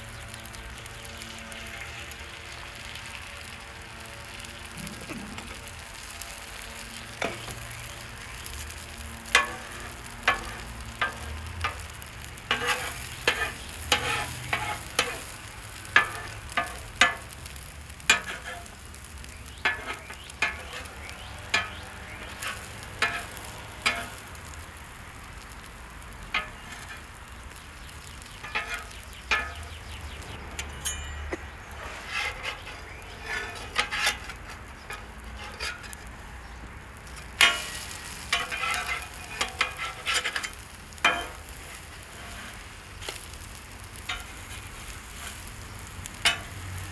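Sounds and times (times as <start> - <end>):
batter sizzling on griddle: 0.0 - 46.9
metal spatulas tapping and scraping: 9.3 - 17.4, 18.1 - 18.7, 19.6 - 24.2, 26.3 - 27.1, 28.4 - 29.8, 30.6 - 36.1, 37.1 - 43.3, 46.2 - 46.6.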